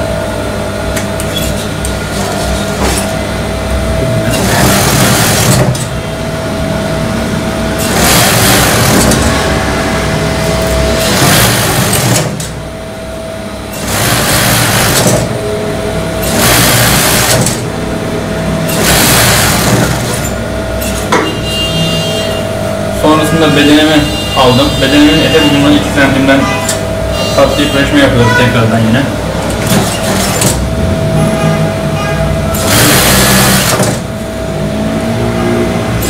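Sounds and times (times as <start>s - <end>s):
sewing machine hum: 1.5s - 12.8s, 13.4s - 22.4s, 23.0s - 36.0s
sewing machine sewing: 4.2s - 5.9s, 7.8s - 9.4s, 10.9s - 12.6s, 13.7s - 15.3s, 16.2s - 17.7s, 18.7s - 21.1s, 29.5s - 30.6s, 32.5s - 34.1s.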